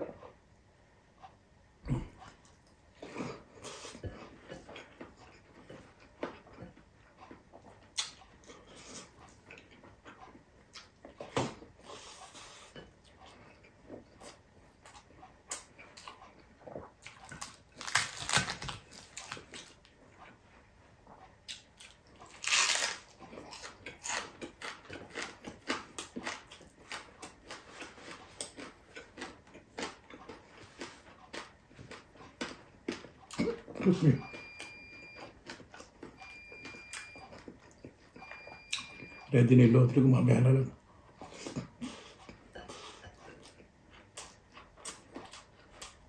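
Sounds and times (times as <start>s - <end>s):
wet smacking and chewing: 1.8s - 39.2s, 41.1s - 46.0s
crispy fish crunching: 17.1s - 19.7s, 22.3s - 27.7s.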